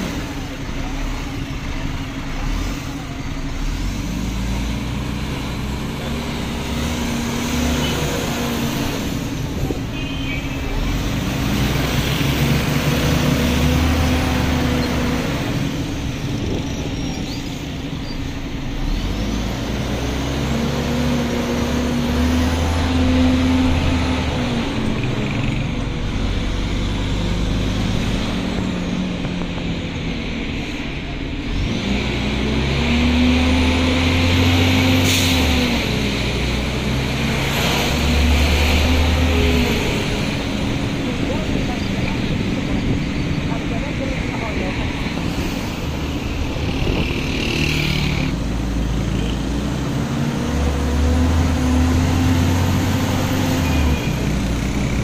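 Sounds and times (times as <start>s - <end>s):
bus engine running: 0.0s - 55.0s
road noise: 0.0s - 55.0s.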